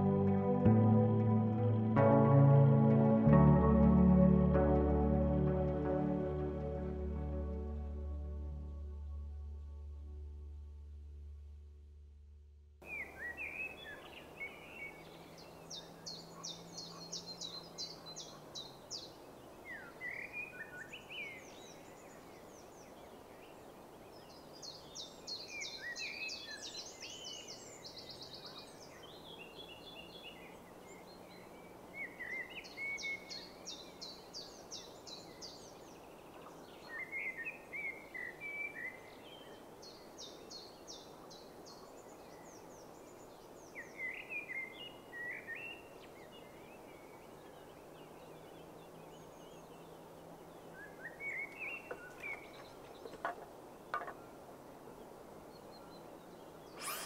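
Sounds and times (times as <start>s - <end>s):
bird chirps: 12.8s - 23.6s, 24.2s - 54.3s, 55.5s - 57.0s
background hiss: 12.8s - 57.0s
bird high trill: 56.8s - 57.0s.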